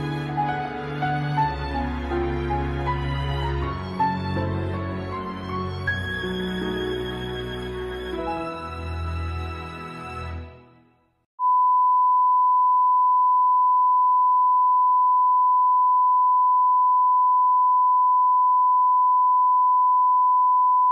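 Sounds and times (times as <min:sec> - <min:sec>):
sad music: 0:00.0 - 0:11.0
sine test tone: 0:11.4 - 0:20.9.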